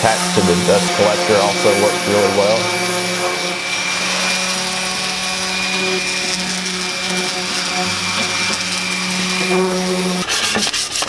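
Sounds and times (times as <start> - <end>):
orbital sander motor hum: 0.0 - 10.6.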